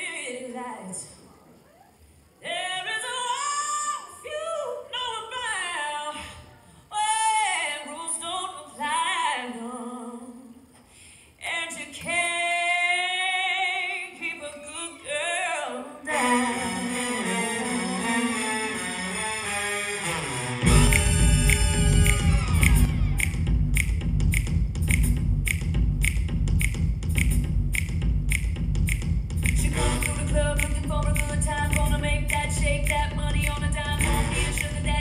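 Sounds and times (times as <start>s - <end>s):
woman singing: 2.4s - 10.7s, 11.4s - 18.1s, 29.5s - 35.0s
instrumental accompaniment: 16.2s - 34.9s.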